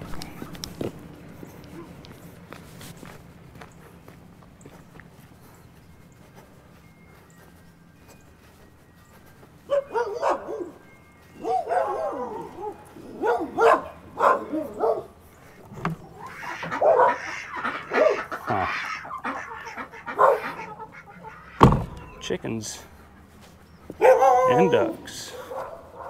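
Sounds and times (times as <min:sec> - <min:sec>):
dog barking: 0:09.7 - 0:10.8, 0:11.4 - 0:15.2, 0:16.5 - 0:18.3, 0:20.1 - 0:20.7, 0:24.0 - 0:26.0.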